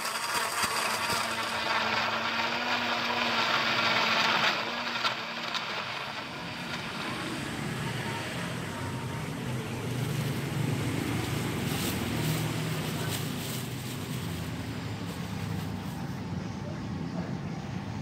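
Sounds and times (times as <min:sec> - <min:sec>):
blender running: 0:00.0 - 0:13.0.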